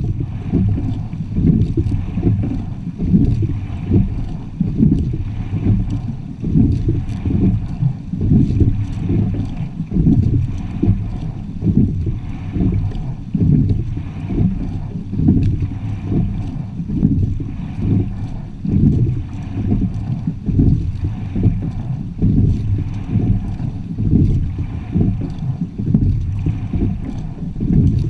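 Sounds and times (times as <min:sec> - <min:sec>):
water rumbling against hull: 0:00.0 - 0:28.0
wind buffeting microphone: 0:00.0 - 0:28.0.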